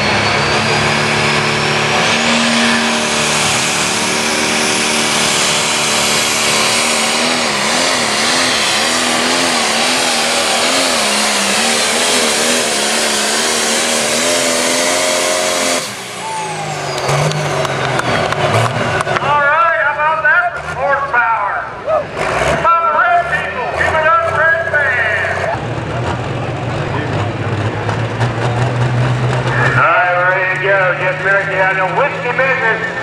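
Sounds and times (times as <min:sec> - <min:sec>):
diesel engine running flat out: 0:00.0 - 0:33.0
high turbo whistle: 0:14.0 - 0:18.3.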